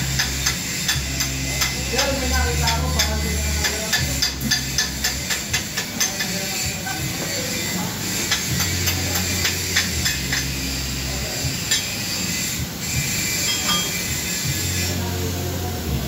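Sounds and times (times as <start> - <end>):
welding arc crackling: 0.0 - 15.5.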